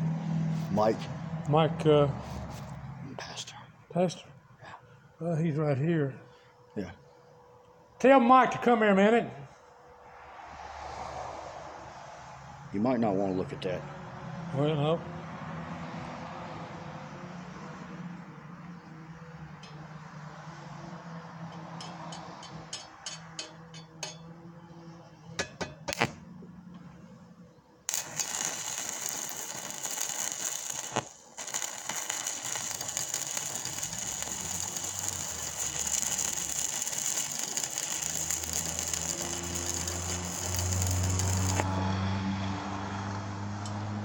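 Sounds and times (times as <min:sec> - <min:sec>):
welding arc crackling: 0:27.9 - 0:41.8.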